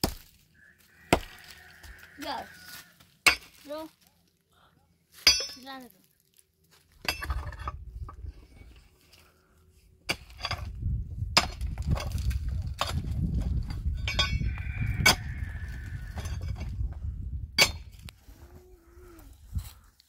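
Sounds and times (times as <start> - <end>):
digging tool striking stony ground: 0.0 - 0.4, 1.1 - 1.5, 3.2 - 3.7, 10.0 - 14.4, 17.6 - 18.1.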